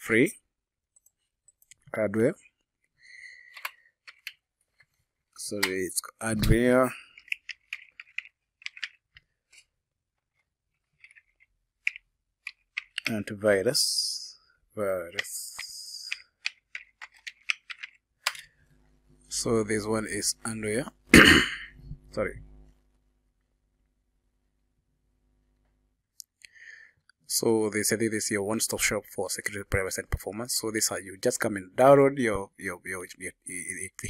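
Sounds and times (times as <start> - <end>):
faint electrical hum: 1.0 - 9.6, 11.0 - 34.0
keyboard keys clicking: 7.2 - 9.0, 15.1 - 18.4.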